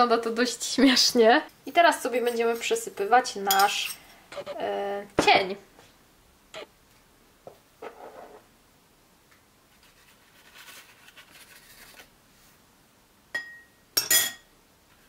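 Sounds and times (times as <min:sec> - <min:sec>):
paper rustling: 0:09.7 - 0:12.1
spoon clinking on ceramic bowl: 0:13.3 - 0:14.5.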